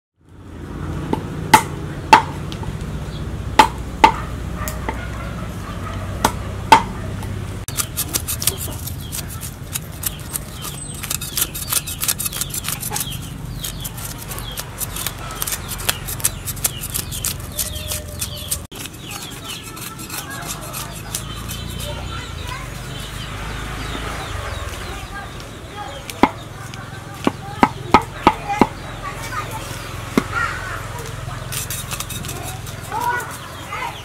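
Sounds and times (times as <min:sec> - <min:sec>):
knife scraping fish scales: 0:07.7 - 0:23.3, 0:31.1 - 0:34.0.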